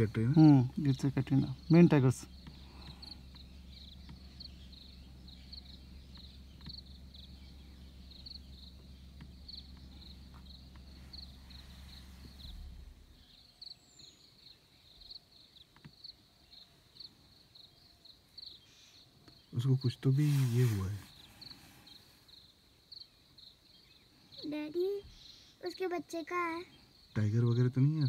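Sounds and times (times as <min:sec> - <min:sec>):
low steady hum: 0:00.0 - 0:15.5
insect chirping: 0:00.0 - 0:28.0.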